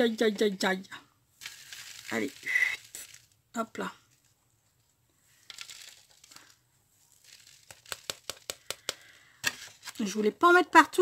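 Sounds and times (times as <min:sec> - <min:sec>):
beads dropping into foam box: 0:01.4 - 0:03.4, 0:05.3 - 0:10.0.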